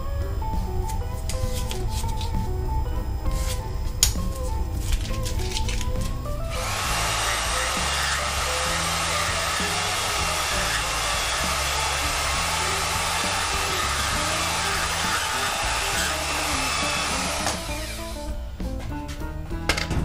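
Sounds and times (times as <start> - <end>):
band saw cutting steel: 6.5 - 18.4.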